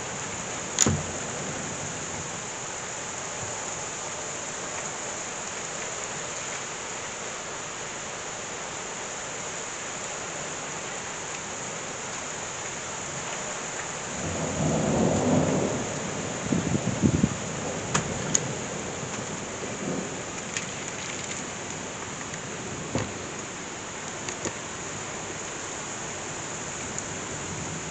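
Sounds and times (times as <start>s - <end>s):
heavy rain hissing: 0.0s - 27.9s
thunder rumbling and cracking: 14.1s - 20.7s.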